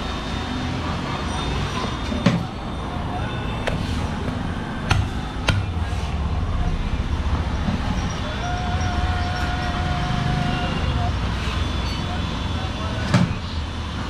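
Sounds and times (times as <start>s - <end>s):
low rumble of street traffic: 0.0s - 14.0s
cleaver chopping on wooden block: 4.8s - 5.7s.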